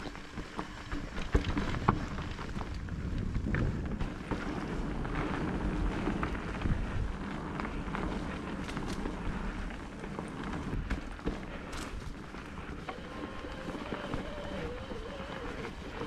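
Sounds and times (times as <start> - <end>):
bike knocks and rattles: 0.0 - 16.0
tyres rolling over dirt and stones: 0.0 - 16.0.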